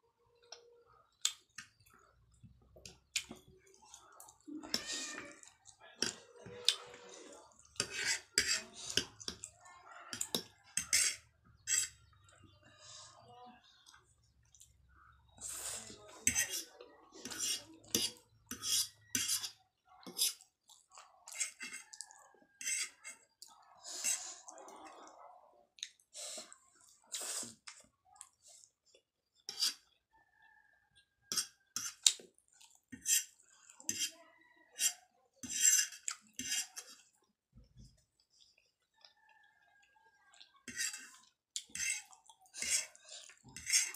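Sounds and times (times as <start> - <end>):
fork scraping on a ceramic plate: 6.0 - 9.4, 10.1 - 12.0, 15.8 - 20.4, 21.3 - 21.9, 22.6 - 23.2, 29.5 - 29.8, 31.3 - 32.1, 32.9 - 34.1, 34.7 - 37.1, 40.6 - 43.9
close chewing: 20.2 - 25.0, 31.0 - 34.1, 35.7 - 43.9.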